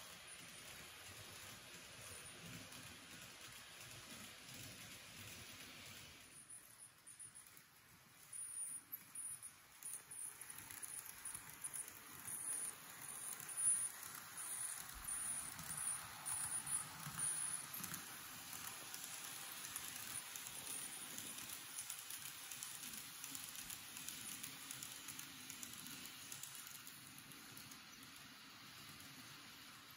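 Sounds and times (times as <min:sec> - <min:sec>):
model train wheels clicking on rails: 0:00.0 - 0:29.9
faint high whine: 0:06.2 - 0:22.2.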